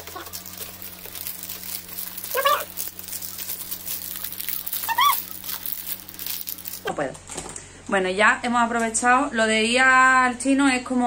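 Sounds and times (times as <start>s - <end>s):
plastic bag crinkling: 0.0s - 6.9s
short high-pitched cries: 2.3s - 2.7s, 4.8s - 5.6s.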